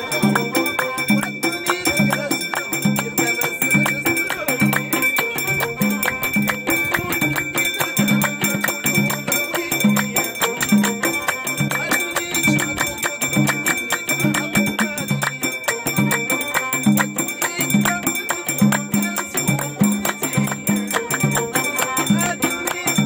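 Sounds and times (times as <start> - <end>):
frame drum beat: 0.0 - 23.0
hand clapping: 0.0 - 23.0.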